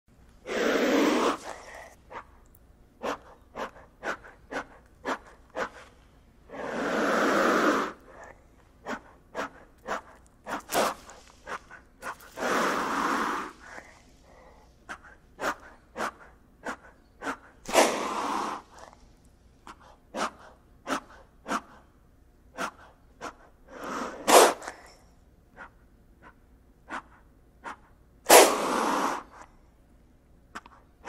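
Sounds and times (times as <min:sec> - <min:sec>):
long breathy hisses: 0:00.4 - 0:02.0, 0:06.5 - 0:09.5, 0:12.3 - 0:14.8
short sharp puffs: 0:08.9 - 0:12.4.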